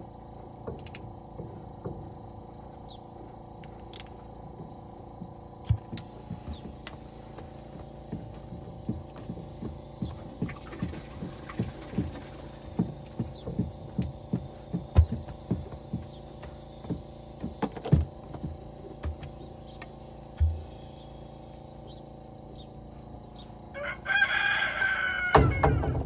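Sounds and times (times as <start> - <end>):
milking machine pumping: 0.0 - 23.4
louder thumps: 25.3 - 26.0.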